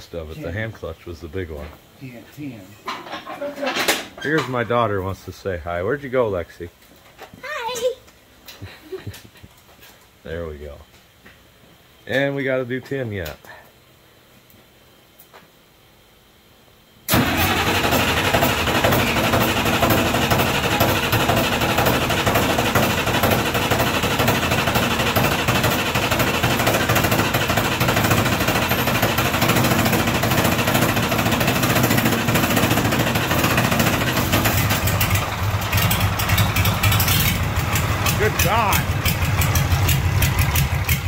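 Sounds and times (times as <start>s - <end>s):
diesel engine starting and running: 17.1s - 41.0s.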